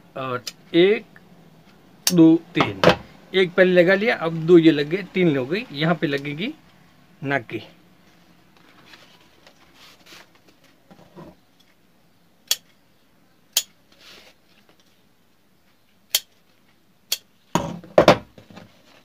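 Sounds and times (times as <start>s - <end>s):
soft rustling of strip: 8.0s - 11.8s.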